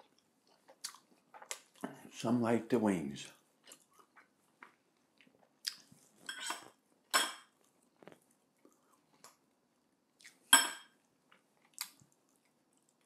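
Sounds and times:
fork clinking and scraping plate: 0:06.2 - 0:07.5.

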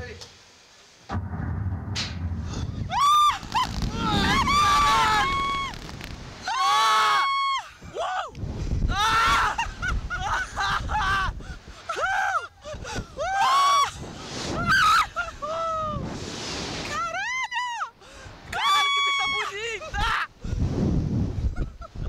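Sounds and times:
wind on microphone: 0:01.1 - 0:06.4, 0:08.4 - 0:11.7, 0:20.4 - 0:22.0.

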